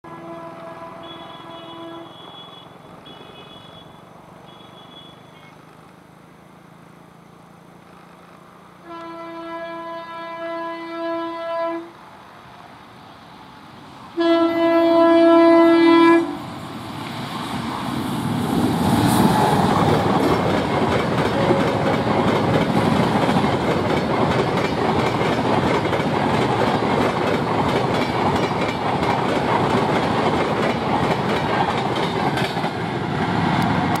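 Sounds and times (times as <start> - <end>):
train horn blasts: 0.0 - 5.2, 8.8 - 12.0, 14.2 - 16.4, 21.4 - 22.1
train coaches rushing rumble: 13.3 - 34.0
wheels clacking over rails: 19.3 - 34.0.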